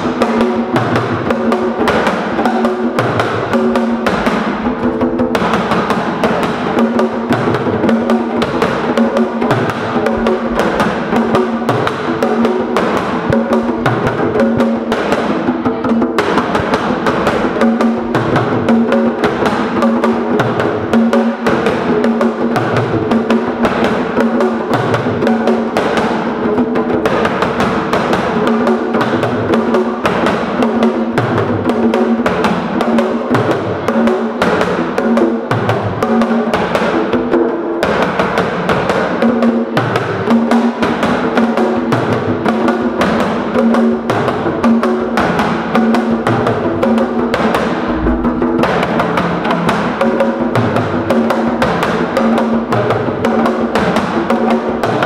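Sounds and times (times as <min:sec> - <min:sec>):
fast hand-drumming: 0:00.0 - 0:55.0
deep drum stroke: 0:47.3 - 0:50.0.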